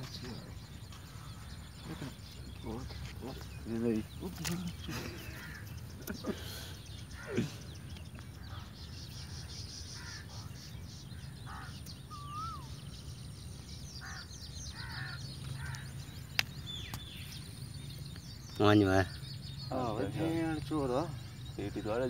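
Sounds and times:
birds calling: 0.0 - 22.0
high chirps: 11.8 - 13.8
whistled bird note: 12.1 - 12.9.

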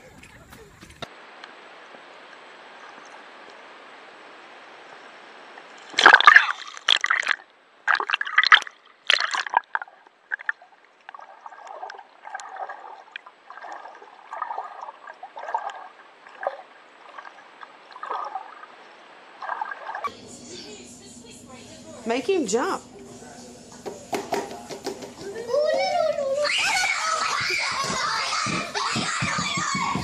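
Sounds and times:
water sloshing and gurgling: 5.3 - 20.1
splashy water strokes: 5.7 - 20.1.

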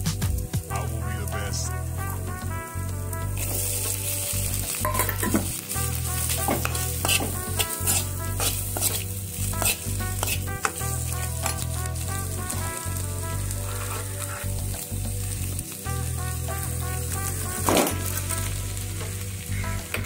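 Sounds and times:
food sizzling in pan: 0.6 - 20.0
metal spoon scraping pan: 3.4 - 12.0, 13.5 - 14.9.

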